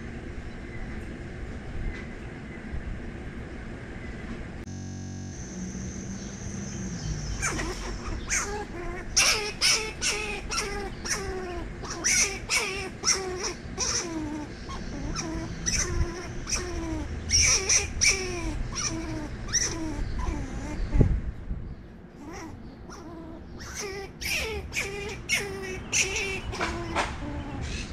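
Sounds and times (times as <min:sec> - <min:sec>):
squirrel barking alarm calls: 0:06.2 - 0:21.1, 0:22.2 - 0:27.9.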